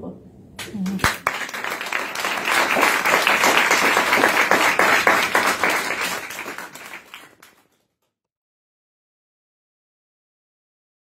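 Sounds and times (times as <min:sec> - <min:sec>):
audience applauding: 0:00.6 - 0:07.8.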